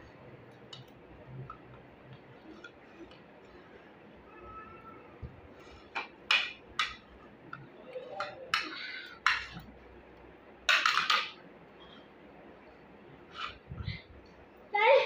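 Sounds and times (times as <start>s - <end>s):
utensils scraping on a plate: 13.3s - 13.6s.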